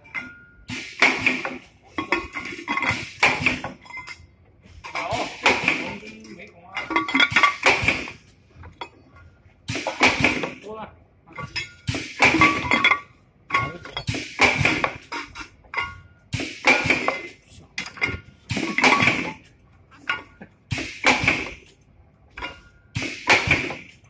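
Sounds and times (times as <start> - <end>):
metallic ring: 0.0 - 0.7, 3.8 - 4.3
metallic clanks and clinks: 0.0 - 7.9, 11.3 - 20.6, 21.4 - 24.0.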